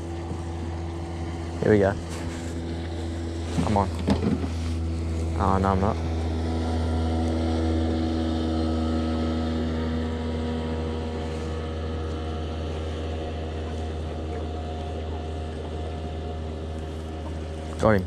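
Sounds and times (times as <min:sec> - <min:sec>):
motorboat engine droning: 0:00.0 - 0:18.0.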